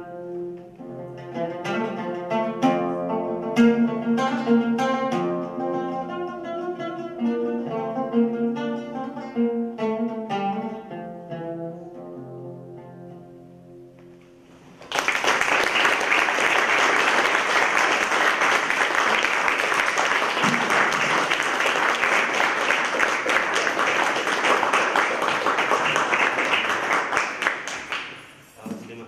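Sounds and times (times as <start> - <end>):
plucked oud notes: 0.0 - 14.6
audience applause: 14.8 - 28.3.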